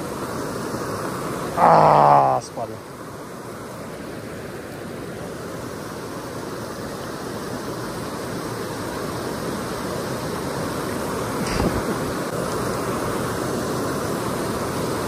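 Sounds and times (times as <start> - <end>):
river water rushing over weir: 0.0 - 15.0.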